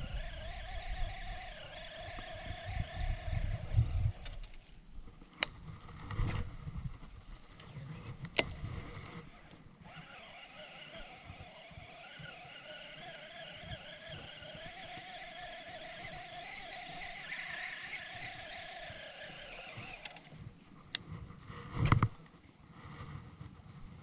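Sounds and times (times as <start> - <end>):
engine-like drone: 0.0 - 4.7, 7.7 - 20.4.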